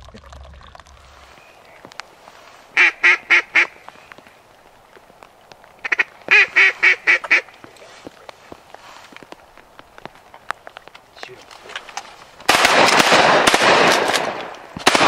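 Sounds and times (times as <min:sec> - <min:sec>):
duck call quacks: 0:02.8 - 0:03.7, 0:05.8 - 0:07.5.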